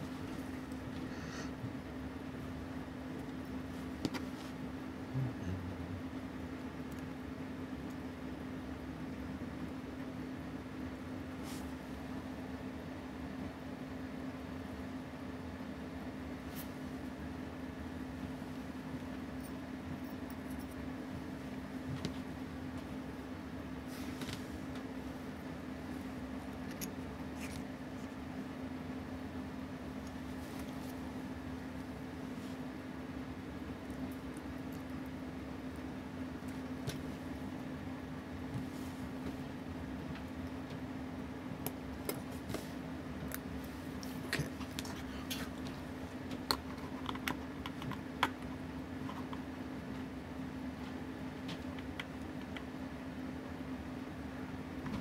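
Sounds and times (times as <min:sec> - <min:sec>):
low background hum: 0:00.0 - 0:55.0
small clicks and taps: 0:51.4 - 0:52.7.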